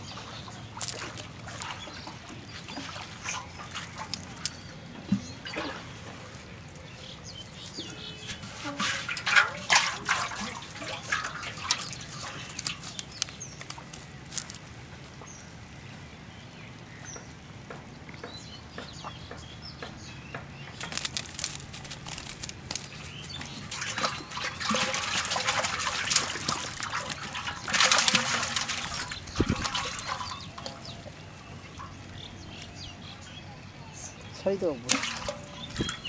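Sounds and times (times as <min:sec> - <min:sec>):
water splashing: 0:00.0 - 0:17.7, 0:20.8 - 0:36.0
fish flapping in wet net: 0:07.6 - 0:14.7, 0:20.8 - 0:31.9, 0:34.9 - 0:36.0.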